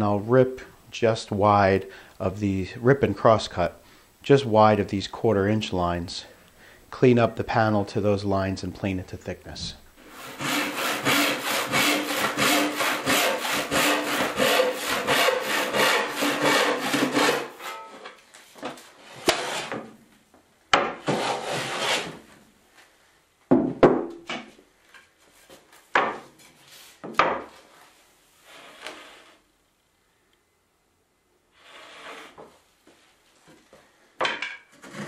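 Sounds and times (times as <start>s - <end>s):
hand saw cutting wood: 10.0s - 17.8s, 19.2s - 19.8s, 21.0s - 22.2s, 31.6s - 32.4s, 34.8s - 35.0s.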